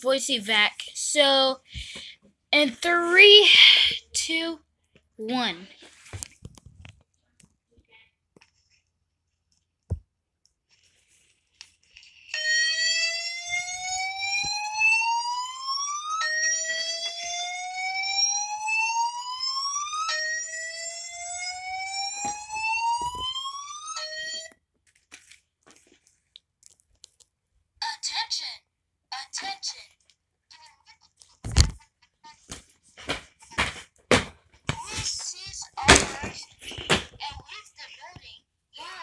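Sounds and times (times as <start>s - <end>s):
fire alarm whoop tone: 12.3s - 24.6s.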